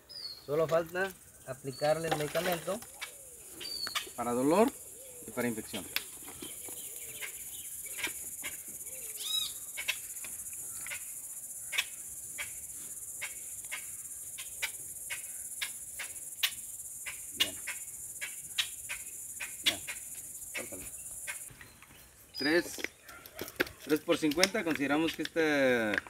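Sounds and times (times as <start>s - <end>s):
insects shrilling: 0.4s - 21.5s.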